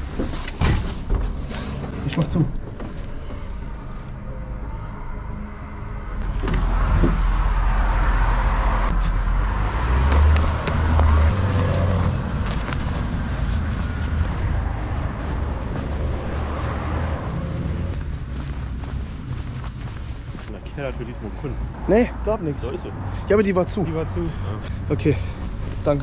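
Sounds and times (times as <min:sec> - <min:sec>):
footsteps: 0:06.2 - 0:21.4
clothing rustling: 0:08.9 - 0:20.5.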